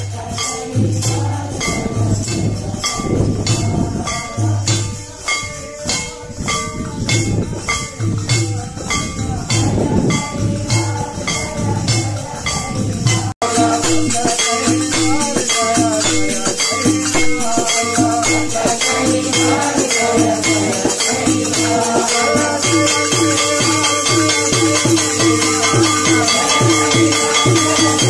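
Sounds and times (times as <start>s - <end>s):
jingling percussion: 0.0s - 28.0s
voices singing devotional song: 0.0s - 28.0s
drum beat: 11.7s - 28.0s.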